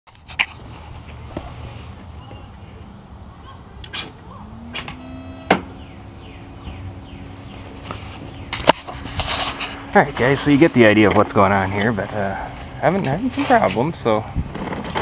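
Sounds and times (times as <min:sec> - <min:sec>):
low tone: 0:04.3 - 0:07.2.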